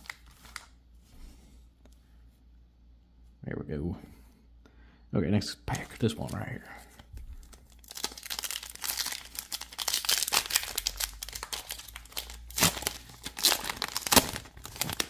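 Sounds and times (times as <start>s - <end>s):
foil wrapper tearing and crinkling: 0.0s - 0.7s, 7.4s - 15.0s.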